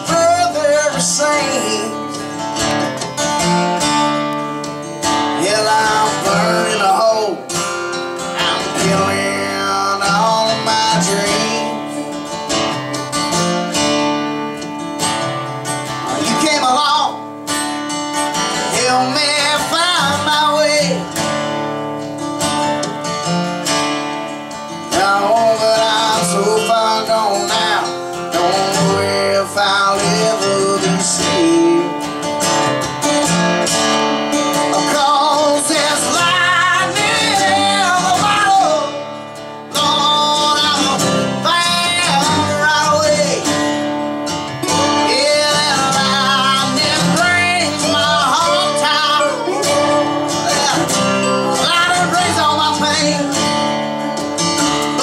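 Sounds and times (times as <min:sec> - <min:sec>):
acoustic guitars strumming: 0:00.0 - 0:55.0
resonator guitar sliding notes: 0:43.2 - 0:55.0.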